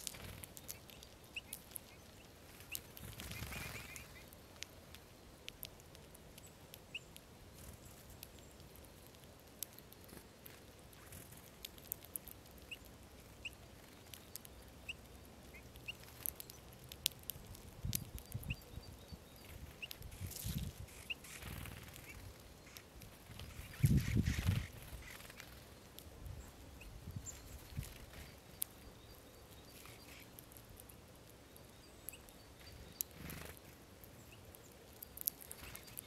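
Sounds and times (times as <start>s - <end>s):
soft high bird calls: 0.0s - 5.6s, 17.9s - 36.0s
birds cracking seeds: 0.0s - 36.0s.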